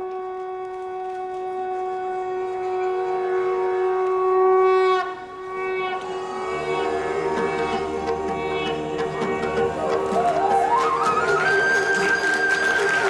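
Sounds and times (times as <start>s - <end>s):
conch shell blown: 0.0s - 13.0s
steady low drone: 0.0s - 13.0s
devotional dance music: 5.5s - 13.0s.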